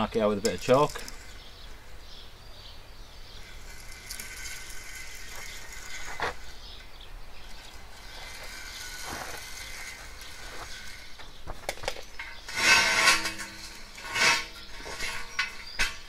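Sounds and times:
steel drum scraping on stone: 0:00.2 - 0:16.0.

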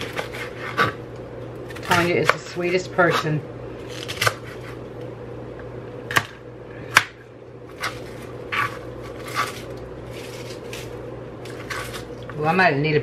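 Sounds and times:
low steady hum: 0:00.0 - 0:13.0
cabbage pieces rustling: 0:07.7 - 0:12.2.

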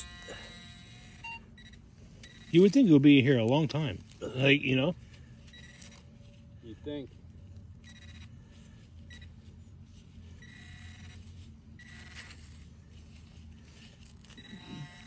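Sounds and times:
metal detector buzzing: 0:00.0 - 0:03.2, 0:10.3 - 0:13.2, 0:13.8 - 0:15.0.

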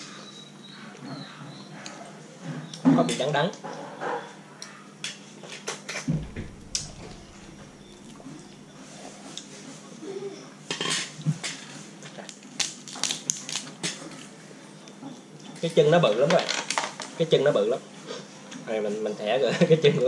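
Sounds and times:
dull thump: 0:06.1 - 0:08.0
crab shell cracking: 0:12.2 - 0:14.0.

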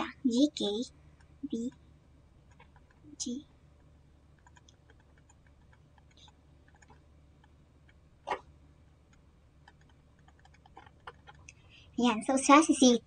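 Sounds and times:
low steady hum: 0:00.0 - 0:13.0
stylus tapping on screen: 0:03.8 - 0:08.4, 0:09.1 - 0:11.6.

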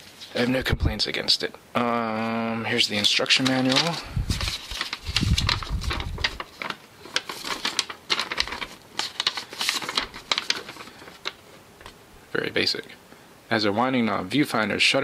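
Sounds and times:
paper crackling and rustling: 0:02.2 - 0:12.0.

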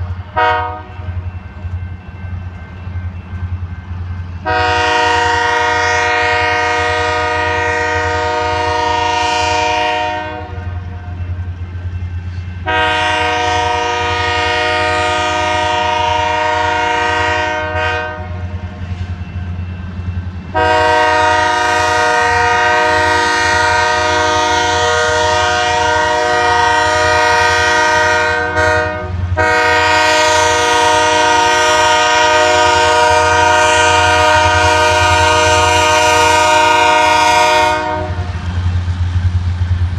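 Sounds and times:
locomotive rumble: 0:00.0 - 0:39.9
locomotive air horn blasts: 0:00.3 - 0:01.2, 0:04.4 - 0:11.2, 0:12.6 - 0:18.6, 0:20.5 - 0:38.4.

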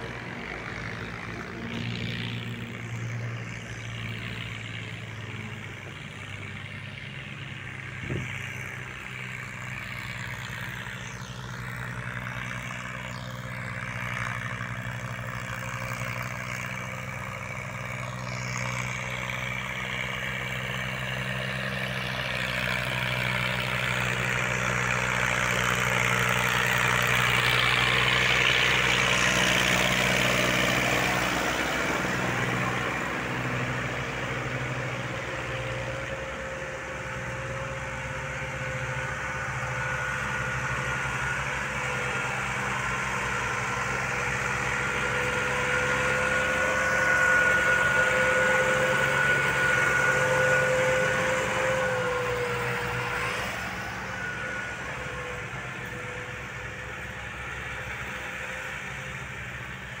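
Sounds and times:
tractor diesel engine labouring: 0:00.0 - 1:00.0
thin steady whine: 0:45.9 - 1:00.0.

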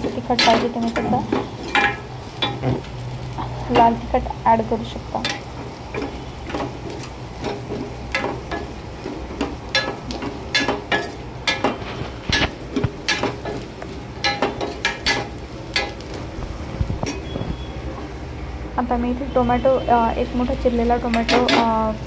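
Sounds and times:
metal spoon clinking and scraping pan: 0:00.0 - 0:02.6, 0:05.2 - 0:16.2, 0:21.0 - 0:21.8
food sizzling in oil: 0:00.0 - 0:22.0.

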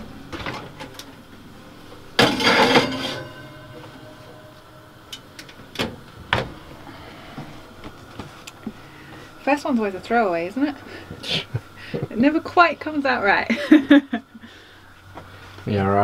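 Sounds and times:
oven door metallic rattle: 0:02.2 - 0:03.7.

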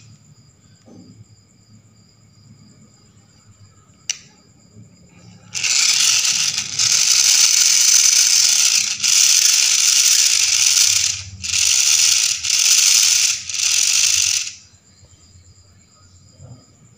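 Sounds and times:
electric motor with gear rattle: 0:05.5 - 0:14.6.

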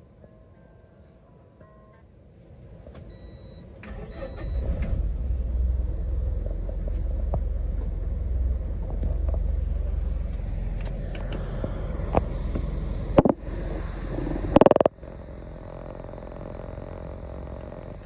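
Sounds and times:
bus engine rumbling: 0:02.1 - 0:18.0.

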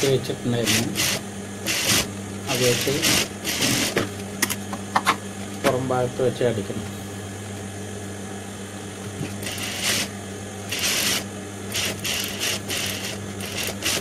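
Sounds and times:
steady hum: 0:00.0 - 0:14.0
sewing machine stitching: 0:00.7 - 0:04.0, 0:09.4 - 0:10.1, 0:10.7 - 0:14.0.

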